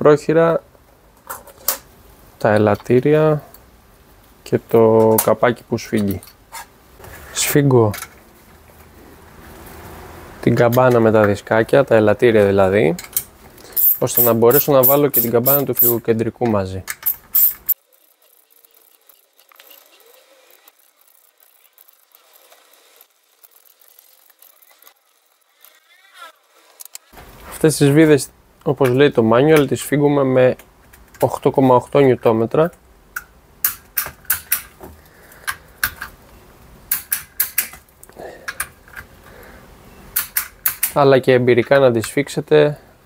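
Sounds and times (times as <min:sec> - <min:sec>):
socket wrench clicking: 0:13.0 - 0:16.0, 0:16.9 - 0:20.2, 0:36.9 - 0:37.8, 0:40.2 - 0:41.0
ratchet wrench clicking: 0:13.1 - 0:16.0, 0:16.9 - 0:25.9.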